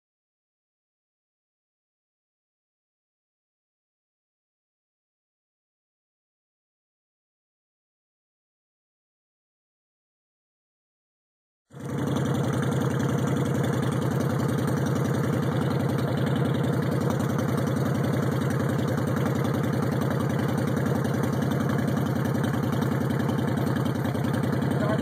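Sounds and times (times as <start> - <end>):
motorcycle engine idling: 11.7 - 25.0.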